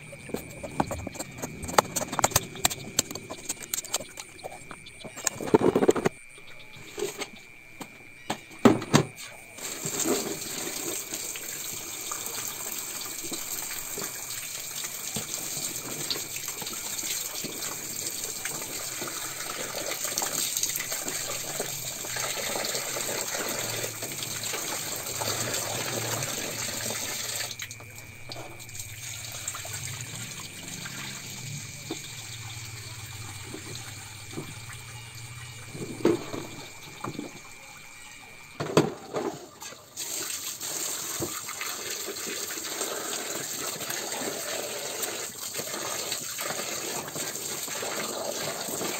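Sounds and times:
tap water splashing into basin: 9.6 - 34.8.

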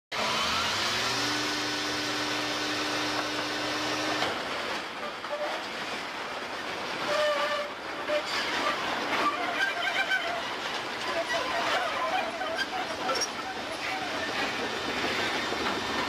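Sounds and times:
rail car crashing and crunching: 4.2 - 16.0.

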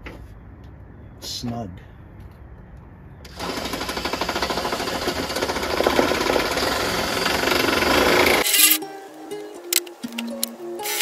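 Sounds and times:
impact driver rattling: 3.3 - 8.8.

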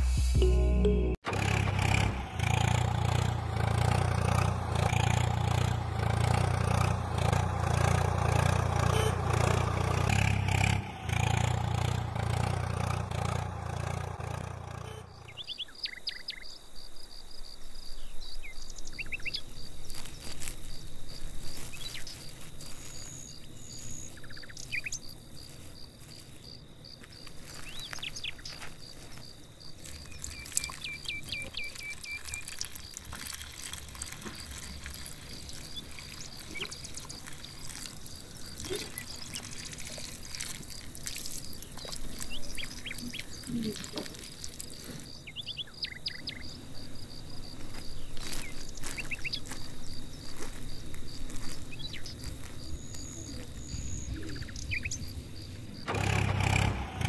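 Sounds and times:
music with heavy bass beat: 0.0 - 1.2
faint high-pitched tone: 0.4 - 1.3
birds chirping: 2.1 - 55.9.

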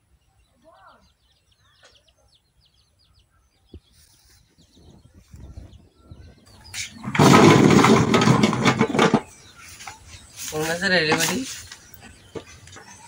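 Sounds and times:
birds chirping faintly: 0.0 - 13.0
lemons clattering into metal basin: 7.0 - 9.4.

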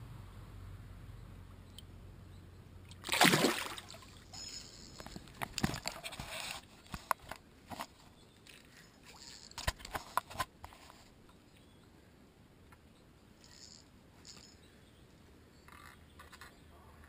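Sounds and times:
water sloshing and dripping: 2.9 - 4.4
loud water splash: 3.0 - 4.1.

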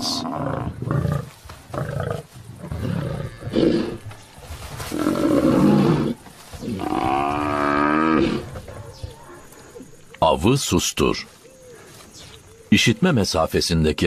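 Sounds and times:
lions growling: 0.0 - 4.1, 4.9 - 9.9
buffalo bellowing: 4.9 - 9.9.

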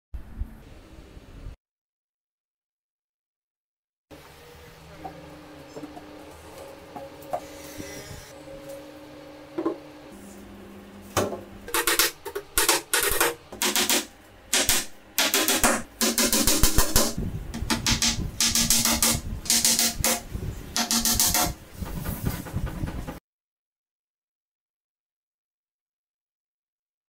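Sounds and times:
hammer driving nails into wood: 11.7 - 20.2, 20.8 - 21.6.

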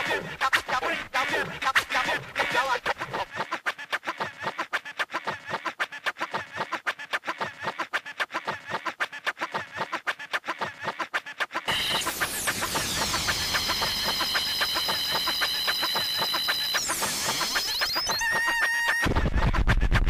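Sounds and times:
electronic music stuttering clicks: 11.7 - 20.0.

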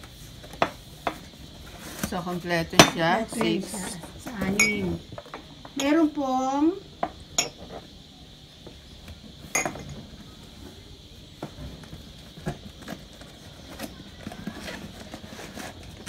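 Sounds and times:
ceramic mugs clinking: 4.5 - 5.0, 7.3 - 7.6, 9.5 - 10.0.

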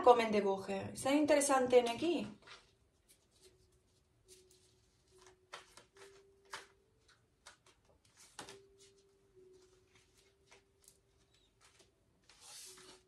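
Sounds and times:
cards rustling and tapping: 4.3 - 13.0.

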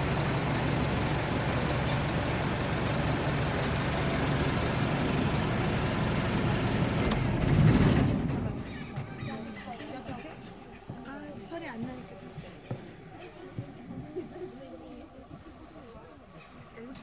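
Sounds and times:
truck engine and road rumble: 0.0 - 17.0.

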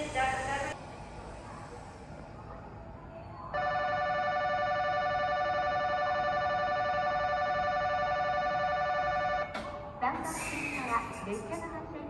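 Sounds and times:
electronic bell trilling: 3.6 - 9.5.

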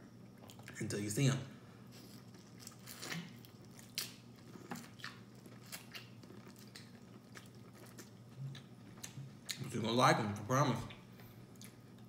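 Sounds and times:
wet chewing and lip-smacking: 2.0 - 9.7.

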